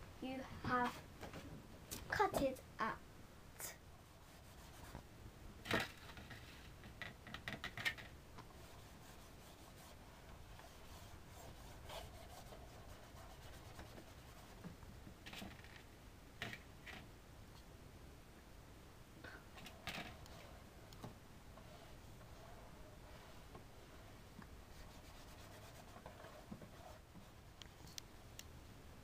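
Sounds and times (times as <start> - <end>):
paintbrush brushing on cardboard: 4.0 - 5.0, 8.5 - 14.6, 21.6 - 27.4.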